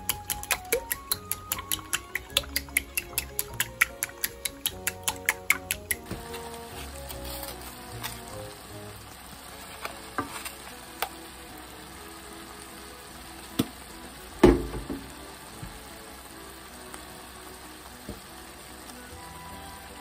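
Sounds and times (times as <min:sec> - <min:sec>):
food sizzling in a frying pan: 0:00.0 - 0:20.0
sharp clicks: 0:00.1 - 0:06.1
loud knock: 0:14.4 - 0:15.0.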